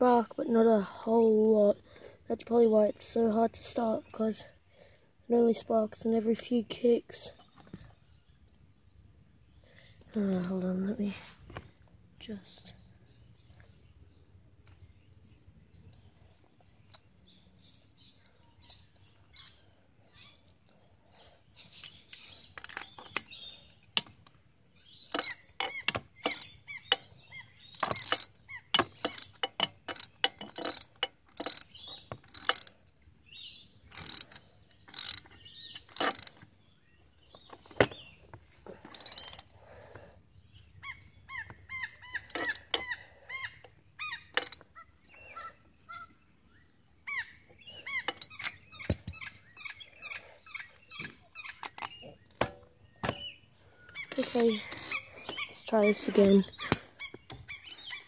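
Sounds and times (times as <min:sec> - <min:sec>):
ratcheting spanner clicking: 0:25.1 - 0:32.8, 0:33.9 - 0:36.5, 0:38.8 - 0:39.5, 0:42.1 - 0:43.0, 0:44.3 - 0:44.6, 0:48.1 - 0:49.2.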